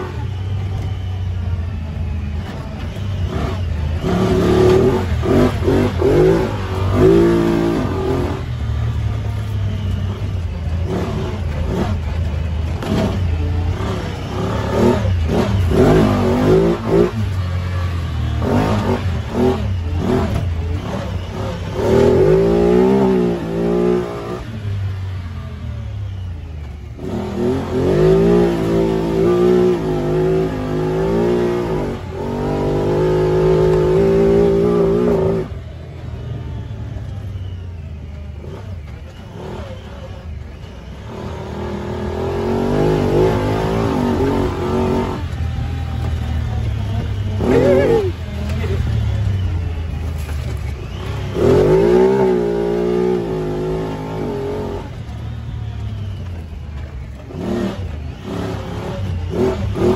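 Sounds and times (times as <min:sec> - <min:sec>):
off-road vehicle engine revving: 0:00.0 - 0:59.9
vehicle rattles and knocks: 0:44.7 - 0:51.7.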